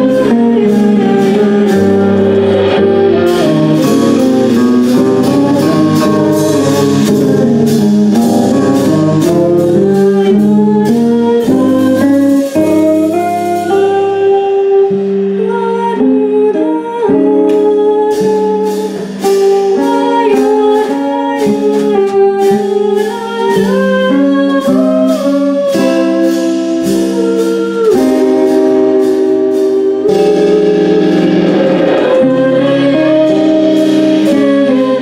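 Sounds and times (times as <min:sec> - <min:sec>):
cymbal strikes: 0:00.0 - 0:15.5, 0:24.6 - 0:35.0
live band playing: 0:00.0 - 0:35.0
woman singing into a microphone: 0:00.0 - 0:35.0.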